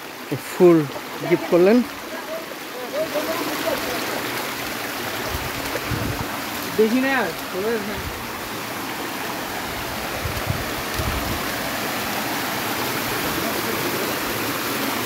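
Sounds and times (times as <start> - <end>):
stream rushing over rocks: 0.0 - 15.0.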